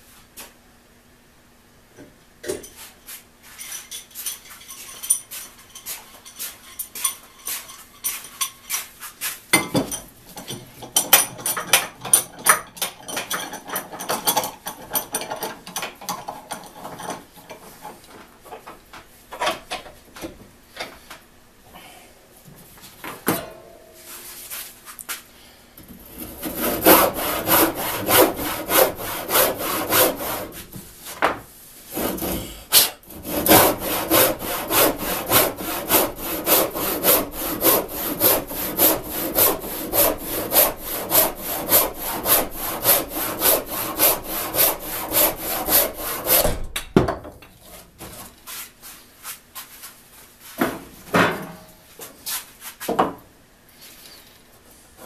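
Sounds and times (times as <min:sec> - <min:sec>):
hand saw cutting wood: 0:26.0 - 0:30.7, 0:31.9 - 0:46.6.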